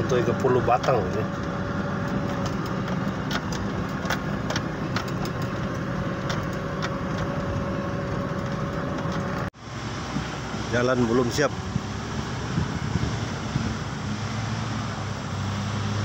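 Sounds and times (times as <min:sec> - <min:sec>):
light clicks and rattles: 0:00.0 - 0:09.5
vehicle engine running: 0:00.0 - 0:16.0.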